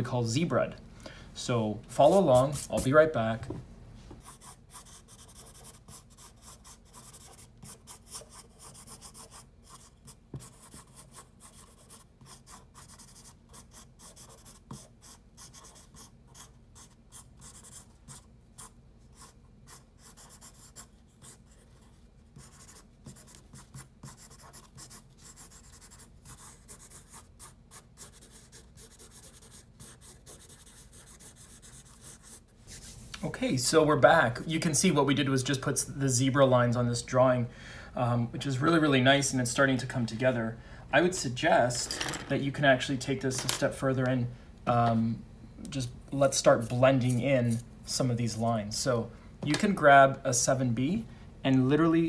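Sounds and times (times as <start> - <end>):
pencil scratching on paper: 4.2 - 33.0, 46.6 - 47.6.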